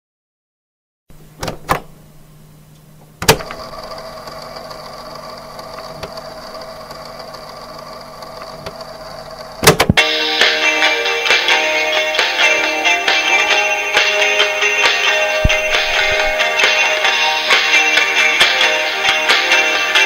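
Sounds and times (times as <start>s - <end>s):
faint motor hum: 1.1s - 10.0s, 12.5s - 19.8s
cassette deck clicks: 2.8s - 3.8s, 5.8s - 6.4s, 9.6s - 10.0s
cassette play key clunk: 3.2s - 3.7s, 9.6s - 10.0s
music: 10.0s - 20.0s.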